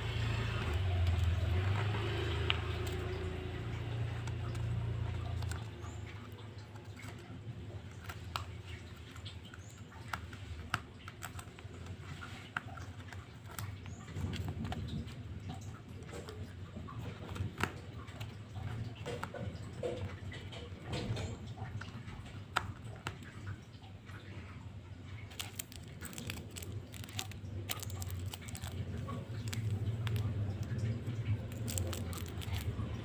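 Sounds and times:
fingers scratching paper: 0:25.2 - 0:33.0.

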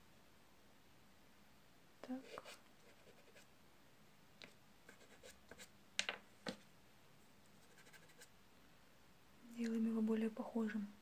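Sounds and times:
pastel scratching on paper: 0:02.2 - 0:03.5, 0:04.9 - 0:05.7, 0:07.6 - 0:08.3.

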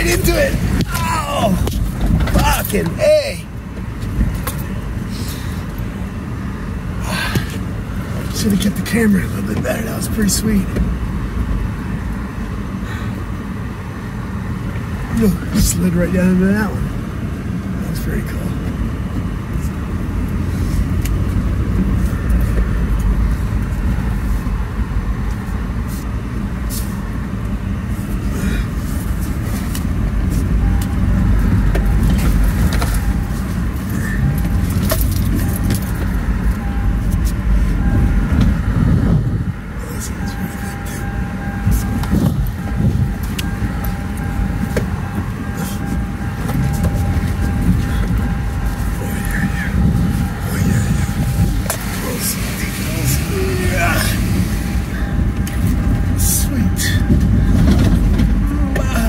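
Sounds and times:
engine running under load: 0:00.0 - 0:59.0
vehicle body knocks and clunks: 0:01.6 - 0:03.0, 0:10.7 - 0:11.0, 0:57.0 - 0:59.0.

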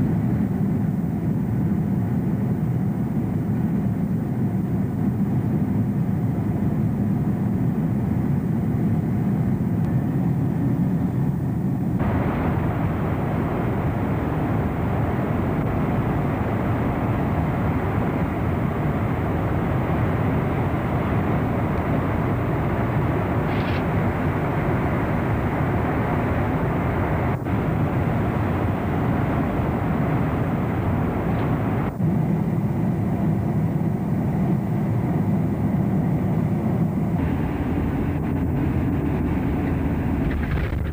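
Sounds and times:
jet cabin rumble: 0:00.0 - 0:40.9
rush of air: 0:12.0 - 0:32.1, 0:37.1 - 0:40.9.

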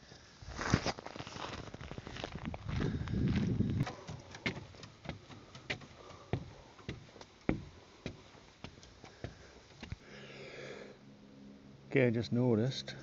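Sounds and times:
footsteps walking: 0:00.5 - 0:10.0.

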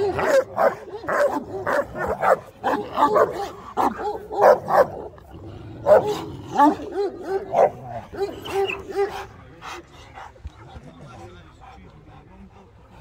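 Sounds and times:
large dogs barking: 0:00.0 - 0:10.4.

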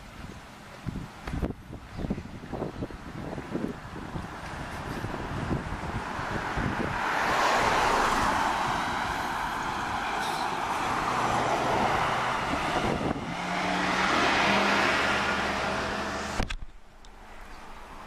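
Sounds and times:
wind buffeting microphone: 0:00.0 - 0:16.8
car passing close by: 0:04.5 - 0:16.6.

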